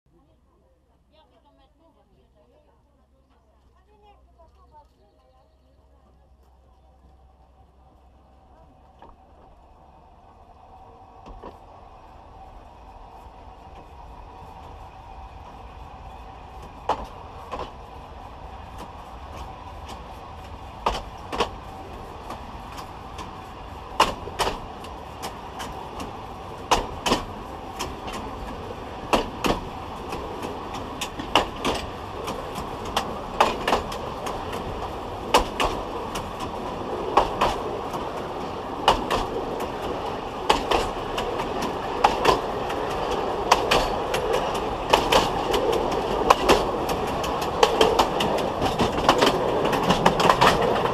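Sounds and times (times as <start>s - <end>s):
train rolling rumble: 0.1s - 50.9s
train wheels clicking over rail joints: 6.3s - 50.9s.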